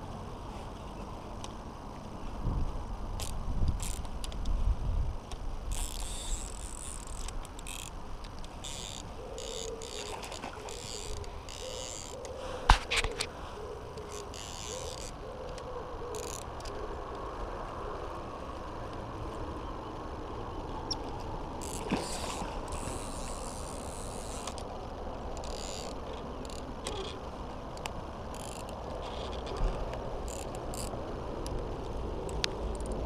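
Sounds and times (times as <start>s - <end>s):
fishing reel whirring: 3.0s - 4.4s, 5.2s - 16.8s, 21.6s - 24.7s, 25.4s - 27.2s, 28.3s - 30.9s
reel clicks: 3.0s - 17.8s, 20.8s - 33.0s.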